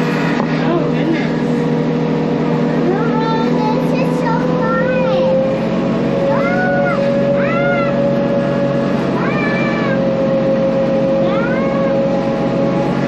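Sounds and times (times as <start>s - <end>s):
tractor engine running: 0.0s - 13.0s
short high rising falling cries: 6.2s - 10.4s.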